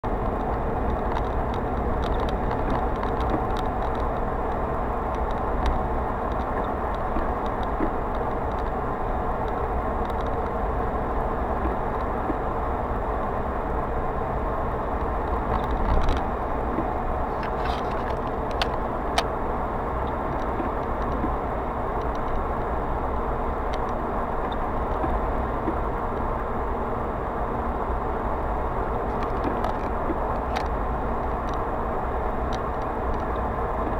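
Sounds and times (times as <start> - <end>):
car road and engine noise: 0.0 - 33.9
light ticks: 0.2 - 8.8, 9.4 - 10.6, 22.0 - 22.4, 23.7 - 26.3, 29.1 - 31.6, 32.5 - 33.9.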